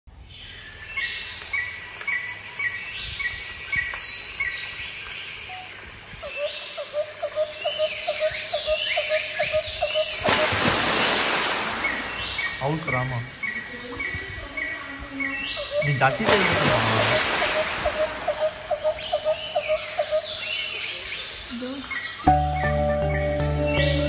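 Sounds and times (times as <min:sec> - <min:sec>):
birds chirping: 0:00.2 - 0:24.0
lower ticking notes: 0:22.2 - 0:24.0.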